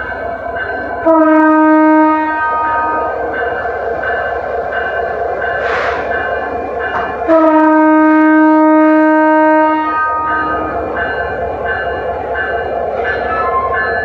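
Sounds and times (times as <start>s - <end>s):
standing train drone: 0.0s - 14.0s
train horn long blast: 1.0s - 3.1s, 7.2s - 10.6s
air hiss: 5.6s - 6.2s.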